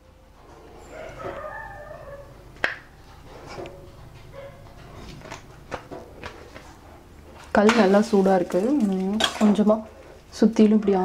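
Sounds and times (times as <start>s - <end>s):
faint animal call: 0.8s - 2.4s.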